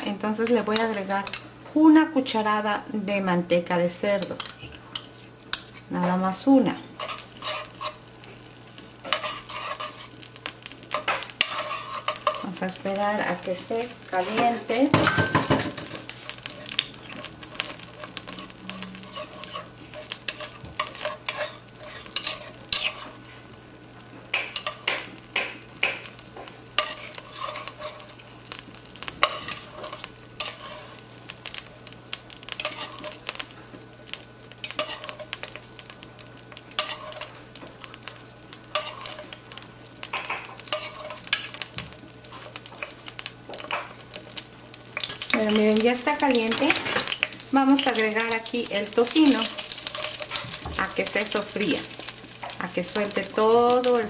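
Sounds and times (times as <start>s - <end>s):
metal spoon scraping clay pot: 18.3s - 23.1s.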